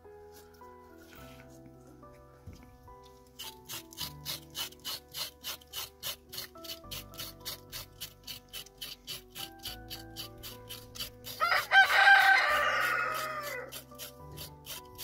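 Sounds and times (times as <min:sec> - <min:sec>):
soft background music: 0:00.0 - 0:15.0
knife scraping carrot skin: 0:03.3 - 0:15.0.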